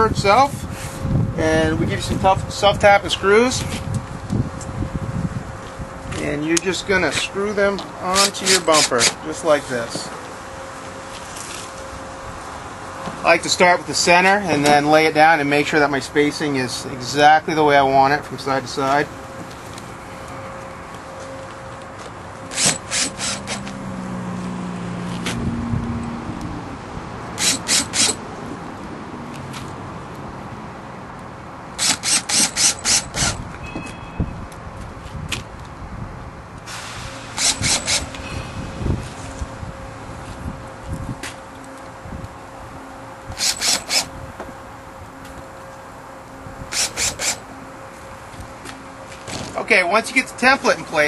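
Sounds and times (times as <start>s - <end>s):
cordless drill driving screws: 8.1s - 9.2s, 22.5s - 23.6s, 27.4s - 28.2s, 31.8s - 33.4s, 37.4s - 38.2s, 43.4s - 44.1s, 46.7s - 47.4s
drill click: 22.5s - 23.6s, 27.4s - 28.2s, 31.8s - 33.4s, 37.4s - 38.2s, 43.4s - 44.1s, 46.7s - 47.4s.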